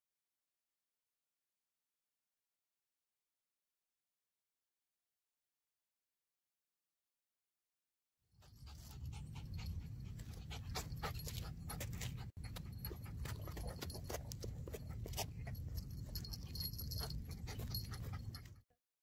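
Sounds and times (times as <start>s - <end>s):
dog panting: 8.4s - 18.6s
claws and shoes on asphalt: 10.1s - 16.7s.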